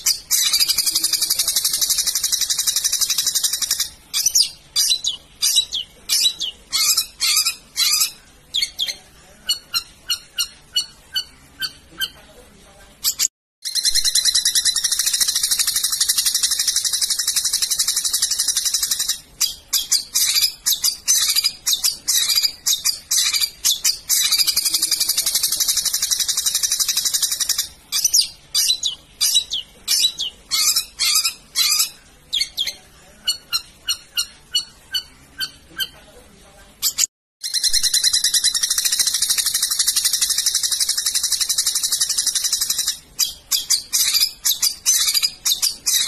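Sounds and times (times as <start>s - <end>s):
bird trilling: 0.0s - 12.2s, 36.8s - 46.0s.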